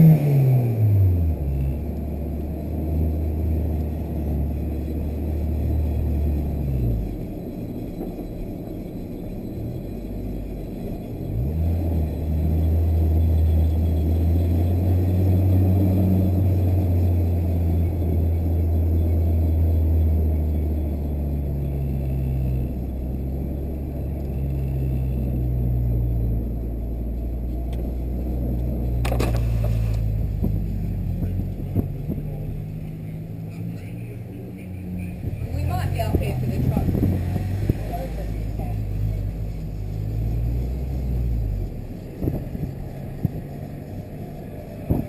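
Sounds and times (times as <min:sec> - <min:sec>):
car engine drone: 0:00.0 - 0:45.0.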